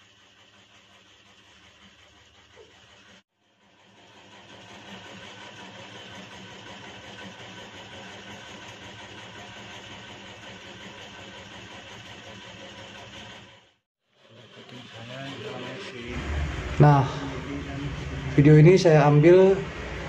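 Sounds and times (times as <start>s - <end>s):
mechanical engine-like hum: 14.3s - 20.0s.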